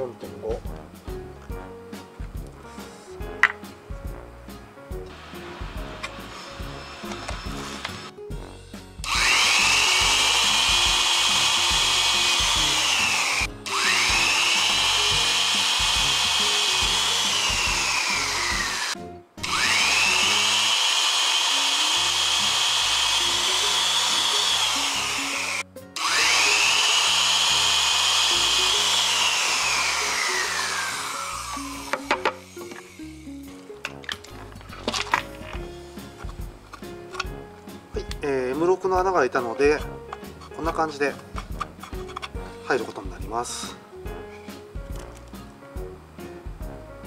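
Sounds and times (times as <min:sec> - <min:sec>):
electric drill whining: 0:05.1 - 0:08.1, 0:09.0 - 0:33.2.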